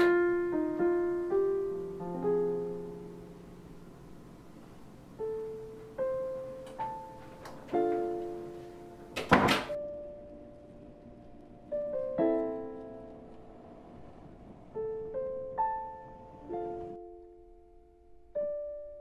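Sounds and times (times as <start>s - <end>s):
slow piano music: 0.0s - 19.0s
door shutting thump: 9.2s - 9.8s.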